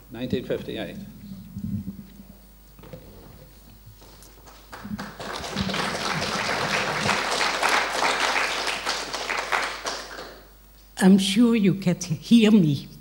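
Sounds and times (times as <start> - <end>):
audience applauding: 4.4 - 10.5.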